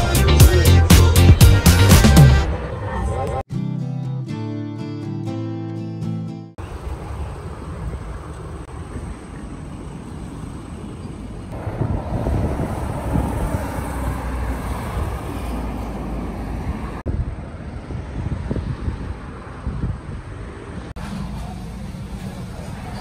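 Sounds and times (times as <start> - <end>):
road traffic noise: 0.0 - 3.5, 6.6 - 23.0
wind rumbling on microphone: 6.6 - 21.0.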